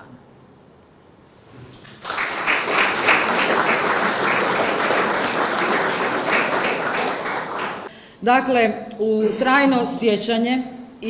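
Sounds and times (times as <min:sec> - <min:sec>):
audience applauding: 0:01.7 - 0:07.9.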